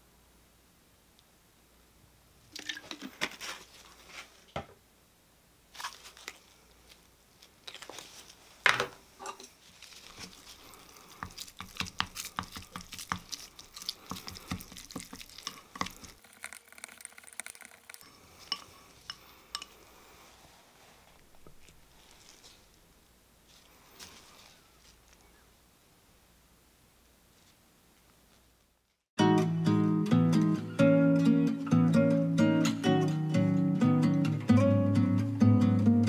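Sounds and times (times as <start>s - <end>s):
wet squishing: 9.8s - 18.0s.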